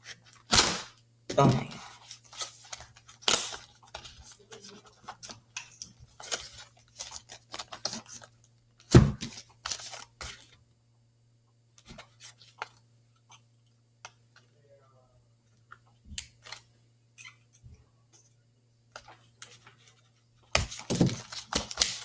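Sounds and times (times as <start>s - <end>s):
cardboard rustling and tearing: 20.6s - 22.0s.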